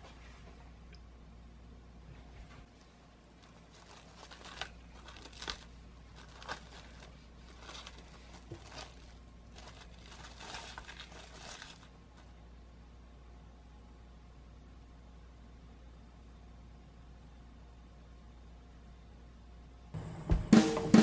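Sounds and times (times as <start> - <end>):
cling film crinkling: 2.7 - 12.3.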